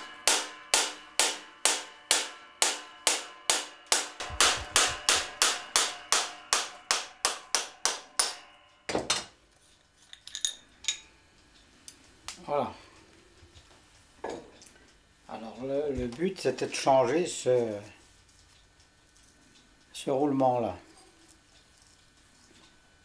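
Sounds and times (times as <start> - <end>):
hammer ringing on metal shaft: 0.0 - 9.4.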